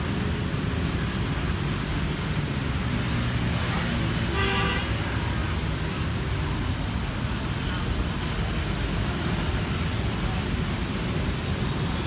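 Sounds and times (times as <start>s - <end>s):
low rumble of street traffic: 0.0s - 12.0s.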